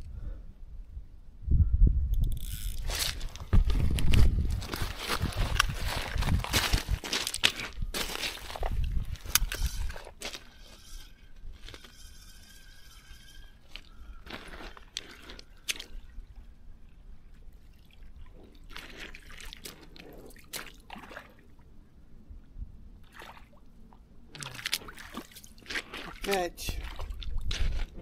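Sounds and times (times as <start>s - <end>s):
pebbles crunching underfoot: 2.8s - 12.2s, 13.6s - 16.1s
water sloshing around boots: 17.3s - 21.6s, 24.4s - 28.0s.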